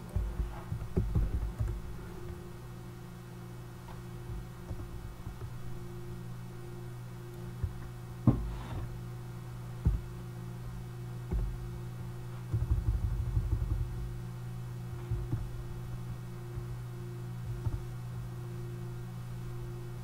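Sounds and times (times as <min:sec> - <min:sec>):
computer humming: 0:00.0 - 0:20.0
faint steady tone: 0:01.4 - 0:12.6, 0:13.6 - 0:20.0
knocks on desk: 0:12.5 - 0:13.9.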